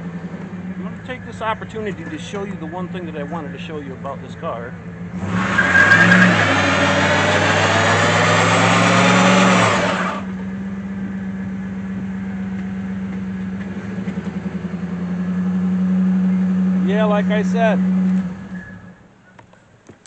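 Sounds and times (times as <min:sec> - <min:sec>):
engine idling: 0:00.0 - 0:05.2
tyres squealing: 0:00.8 - 0:04.5, 0:05.2 - 0:10.3
engine revving high: 0:05.0 - 0:10.4, 0:13.6 - 0:19.0.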